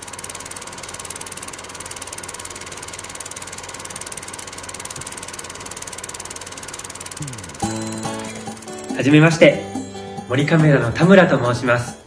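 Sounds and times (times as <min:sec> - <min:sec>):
film projector clattering: 0:00.0 - 0:09.1.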